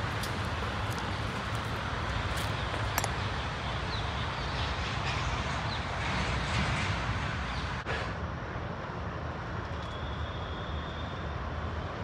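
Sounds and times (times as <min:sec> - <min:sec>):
vehicle driving on gravel: 0:00.0 - 0:03.4.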